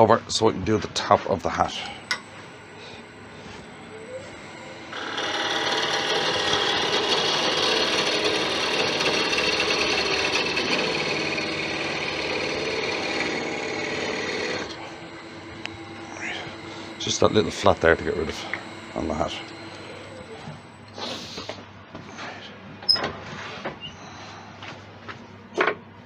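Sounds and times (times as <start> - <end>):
chisel scraping spinning wood: 4.9 - 20.7.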